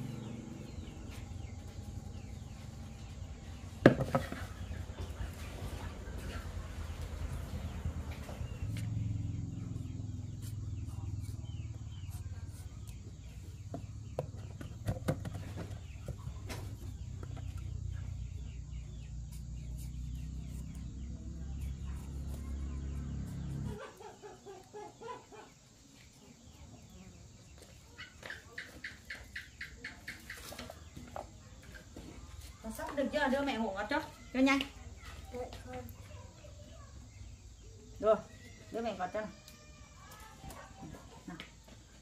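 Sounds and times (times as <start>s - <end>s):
chickens clucking: 0.0s - 10.0s, 23.3s - 32.6s.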